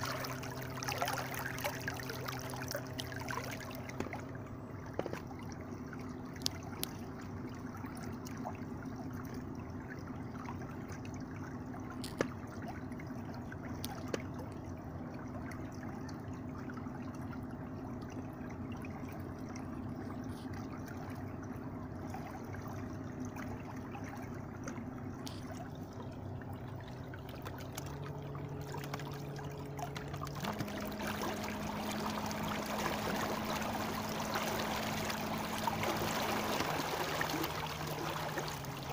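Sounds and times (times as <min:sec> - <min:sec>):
electric trolling motor hum: 0:00.0 - 0:07.4, 0:23.5 - 0:38.9
propeller wash and water: 0:00.0 - 0:38.9.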